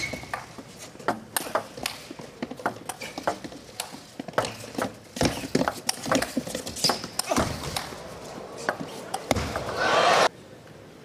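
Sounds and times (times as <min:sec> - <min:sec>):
ball clicking off bats: 0:00.0 - 0:08.0.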